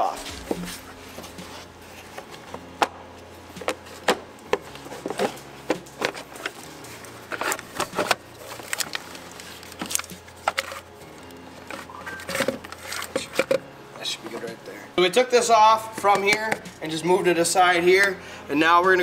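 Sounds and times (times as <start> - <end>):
low steady hum: 0.0 - 15.0
hand tools and plastic parts rattling: 5.0 - 10.9, 11.6 - 13.6.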